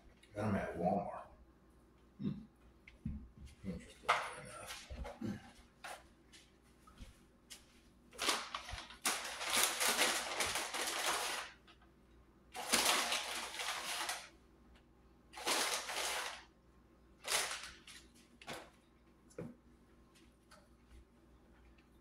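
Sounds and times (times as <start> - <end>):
plastic packaging crinkling: 8.2 - 11.7, 12.6 - 14.4, 15.4 - 16.5, 17.2 - 18.7.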